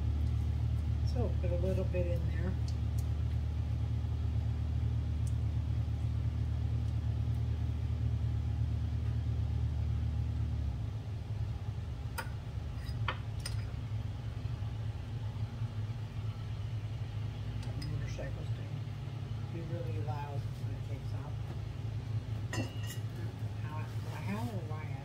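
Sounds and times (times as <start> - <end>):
low mechanical hum: 0.0 - 25.0
metal spoon clinking on container: 22.5 - 23.1.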